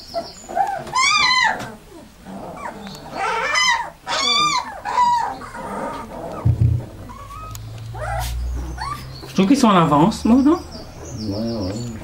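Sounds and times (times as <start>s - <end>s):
puppies yelping and whining: 0.0s - 12.0s.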